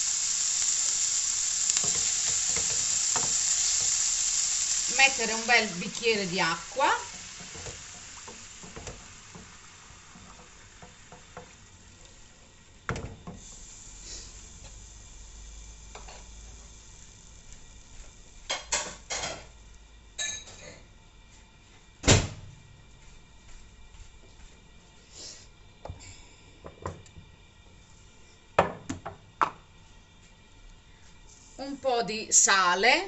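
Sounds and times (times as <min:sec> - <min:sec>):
frying pan hiss: 0:00.0 - 0:20.8.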